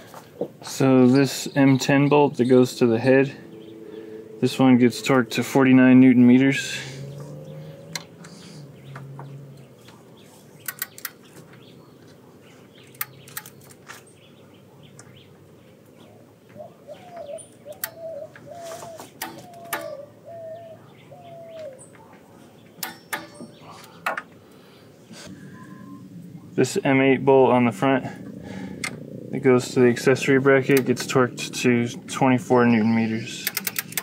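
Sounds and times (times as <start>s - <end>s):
bird chirping: 0.6s - 26.6s, 31.7s - 34.0s
socket wrench clicking: 10.6s - 11.2s, 33.4s - 34.0s.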